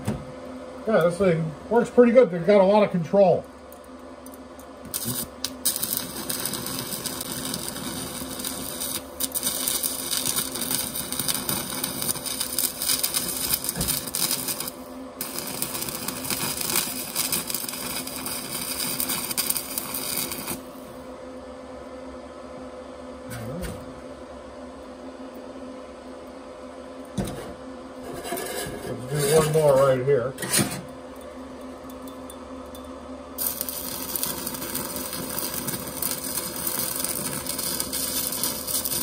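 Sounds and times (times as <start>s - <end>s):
steady low hum: 0.0s - 39.0s
welding arc crackling sizzle: 4.7s - 21.1s, 33.4s - 39.0s.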